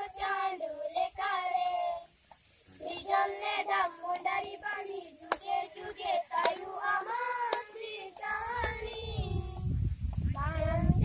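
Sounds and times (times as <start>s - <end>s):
children singing together: 0.0s - 2.1s, 2.7s - 9.7s
hand claps keeping time: 5.3s - 5.6s, 6.4s - 6.7s, 7.4s - 7.8s, 8.6s - 9.1s.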